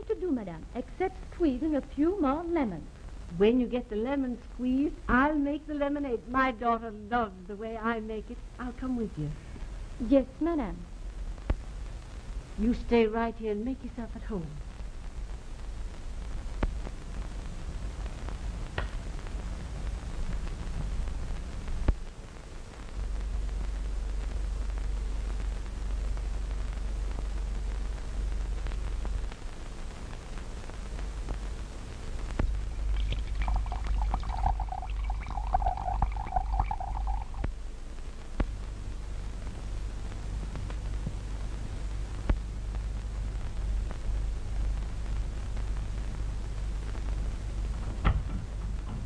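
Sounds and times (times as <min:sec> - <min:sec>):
film soundtrack hiss and hum: 0:00.0 - 0:49.0
liquid glugging into a glass: 0:32.9 - 0:37.4.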